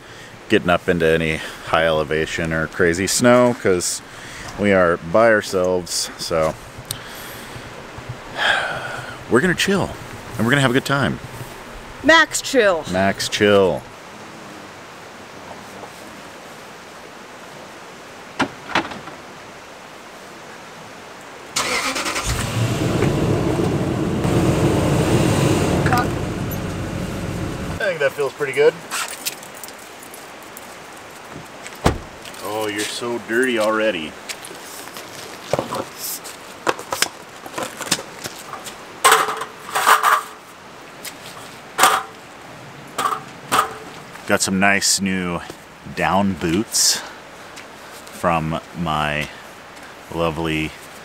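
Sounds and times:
car engine starting and running: 21.6 - 27.8.

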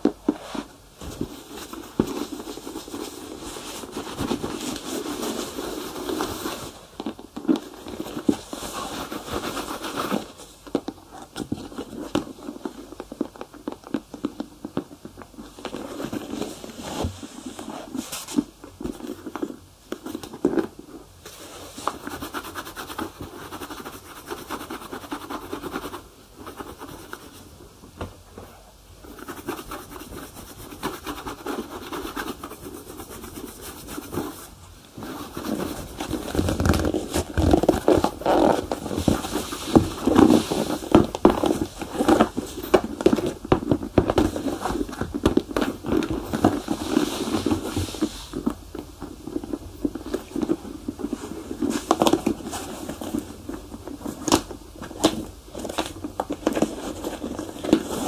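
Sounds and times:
scratchy rubbing on shoe leather: 7.5 - 10.4, 21.7 - 27.4, 29.0 - 43.1.

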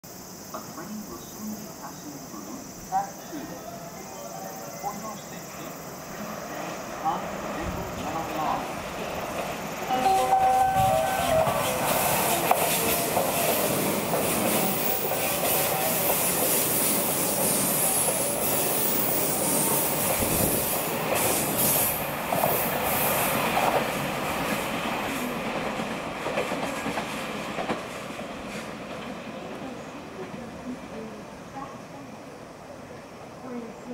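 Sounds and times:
train wheels rumbling on rail: 6.1 - 31.8.

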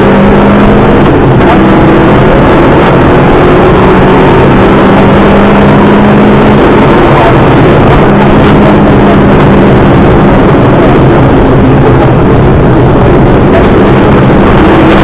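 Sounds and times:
mechanical and road noise: 0.0 - 15.0
rally car engine running hard: 0.0 - 15.0.

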